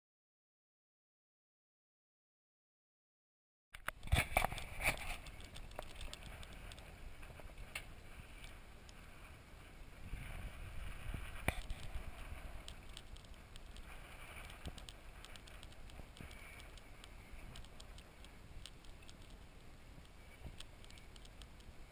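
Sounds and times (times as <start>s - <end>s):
bicycle clicks and rattles: 3.8s - 9.0s, 11.0s - 21.7s
bicycle tyres rumbling: 3.9s - 21.9s.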